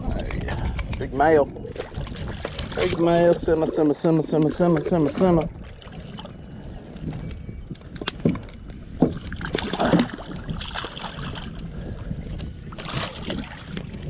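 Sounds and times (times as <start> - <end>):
fish thrashing in water: 9.1 - 11.7, 12.7 - 14.0.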